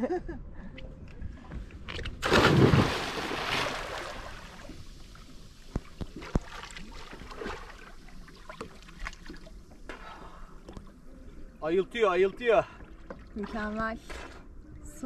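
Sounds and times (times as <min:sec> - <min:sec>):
big splash into water: 0:02.2 - 0:04.8
water churning: 0:02.2 - 0:09.7.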